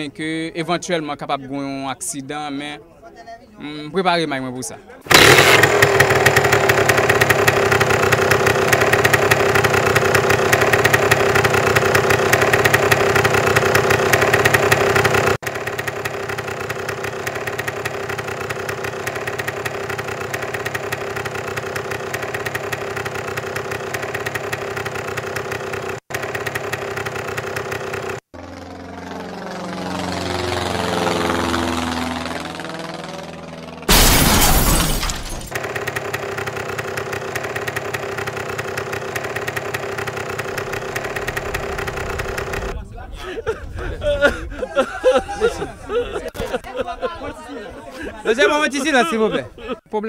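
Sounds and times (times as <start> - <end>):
motorcycle engine running: 5.1 - 33.9, 35.5 - 42.8.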